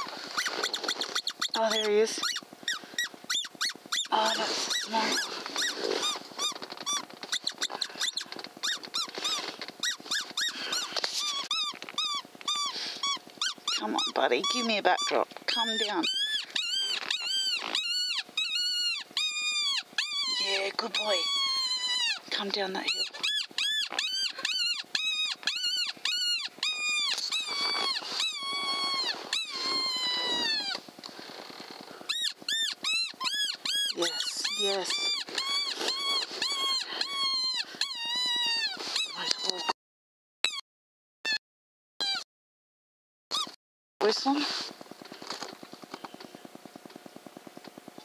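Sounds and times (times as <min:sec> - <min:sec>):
predator call squeaking: 0:00.0 - 0:30.8, 0:32.0 - 0:39.7, 0:42.0 - 0:42.2, 0:43.3 - 0:43.6.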